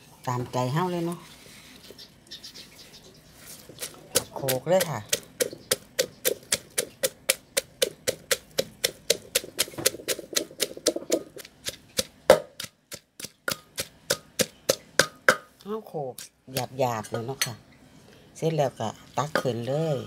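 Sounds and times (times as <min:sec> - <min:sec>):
pestle pounding in a mortar: 0:03.7 - 0:15.5.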